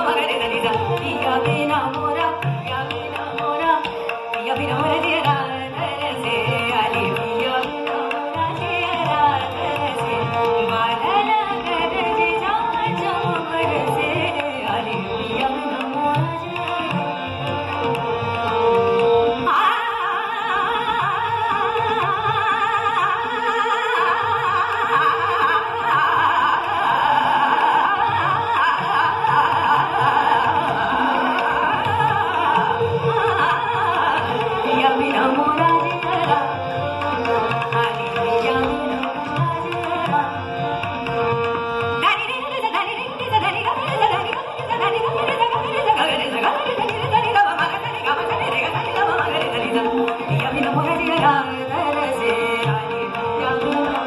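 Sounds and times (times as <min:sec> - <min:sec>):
harmonium: 0:00.0 - 0:54.0
sarangi: 0:00.0 - 0:54.0
tabla: 0:00.0 - 0:54.0
tanpura drone: 0:00.0 - 0:54.0
woman singing: 0:00.0 - 0:54.0.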